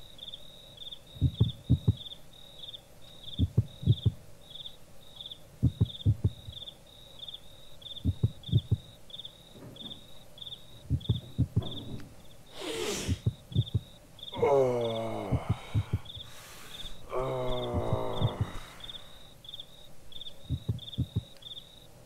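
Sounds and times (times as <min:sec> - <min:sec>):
crickets chirping: 0:00.0 - 0:22.0
low thuds: 0:01.2 - 0:02.1, 0:03.4 - 0:04.2, 0:05.6 - 0:06.6, 0:08.0 - 0:12.4, 0:13.1 - 0:14.0, 0:15.2 - 0:16.3, 0:17.5 - 0:18.7, 0:20.4 - 0:21.4.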